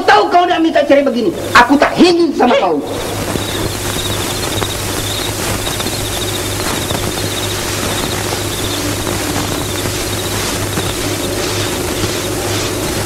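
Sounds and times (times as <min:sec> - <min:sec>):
film soundtrack hiss: 0:00.0 - 0:13.0
pulsing low hum: 0:02.8 - 0:13.0.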